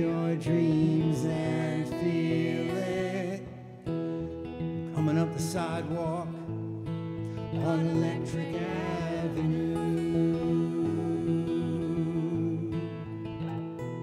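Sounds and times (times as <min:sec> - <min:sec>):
voices singing: 0:00.0 - 0:03.8, 0:07.6 - 0:13.2
acoustic guitar playing: 0:00.0 - 0:14.0.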